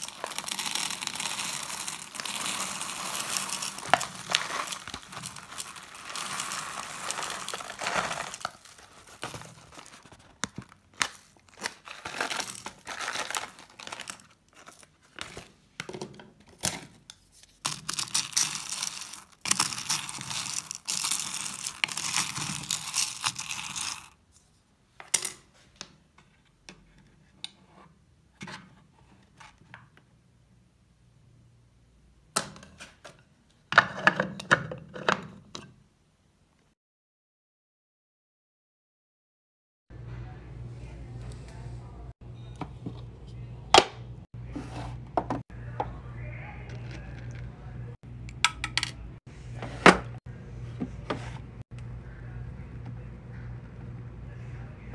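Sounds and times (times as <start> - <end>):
wax beads pouring into metal pot: 0.0 - 10.1, 11.1 - 14.8, 17.6 - 24.2
foil bag crinkling: 0.0 - 15.6, 17.6 - 24.2.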